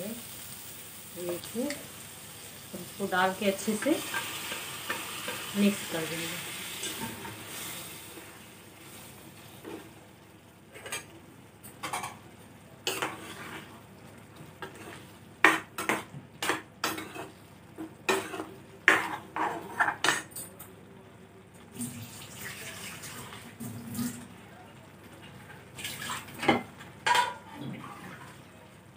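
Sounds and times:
stirring food in steel pan: 3.7 - 5.9, 12.8 - 20.3.

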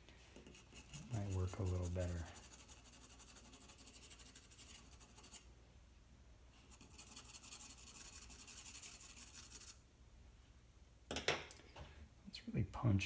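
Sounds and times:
pencil scratching on paper: 0.4 - 5.5, 6.7 - 9.8.

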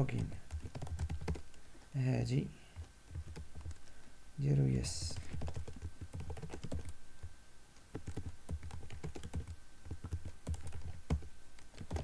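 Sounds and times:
keyboard typing clicks: 0.1 - 1.5, 2.8 - 3.9, 5.1 - 7.0, 7.9 - 12.0.

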